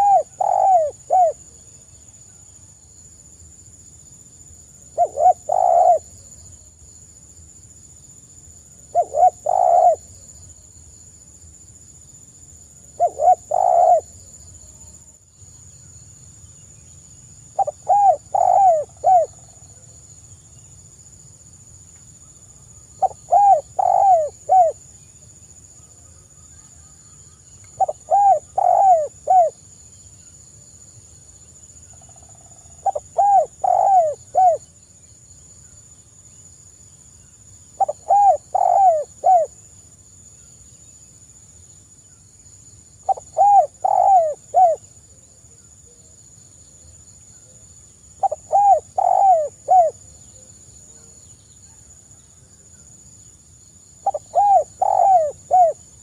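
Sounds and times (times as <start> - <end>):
dove cooing: 0.0 - 1.4, 5.0 - 6.2, 8.9 - 10.1, 13.0 - 14.2, 17.6 - 19.5, 23.0 - 24.8, 27.8 - 29.6, 32.8 - 34.6, 37.8 - 39.5, 43.1 - 44.8, 48.2 - 50.0, 54.0 - 55.8.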